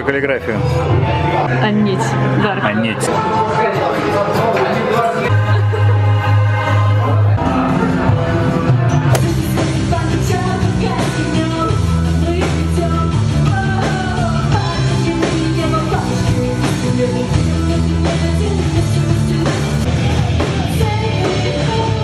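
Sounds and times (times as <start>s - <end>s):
drum kit: 7.6s - 22.0s
woman singing lead: 9.0s - 22.0s.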